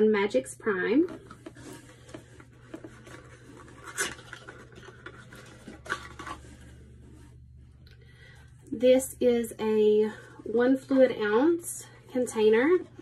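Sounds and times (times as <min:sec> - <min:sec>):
low steady hum: 0:00.0 - 0:13.0
cardboard box scratching in hands: 0:01.4 - 0:07.3.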